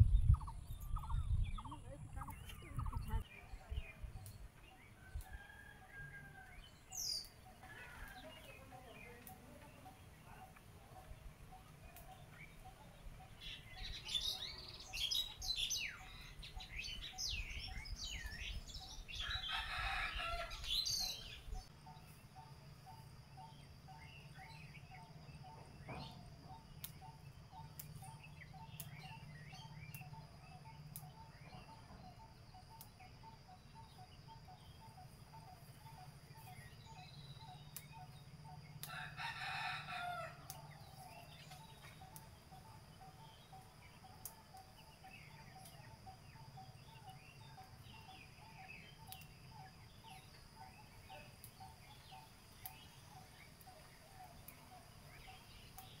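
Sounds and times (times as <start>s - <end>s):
small birds chirping: 0.0s - 56.0s
rooster crowing: 5.0s - 6.7s, 19.2s - 21.2s, 38.8s - 40.6s.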